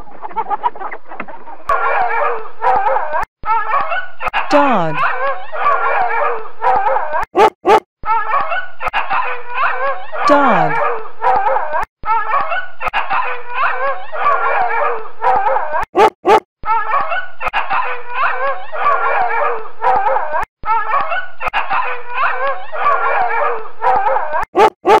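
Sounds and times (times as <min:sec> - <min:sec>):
dog barking and howling: 0:06.1 - 0:07.8, 0:14.4 - 0:16.4, 0:22.8 - 0:25.0.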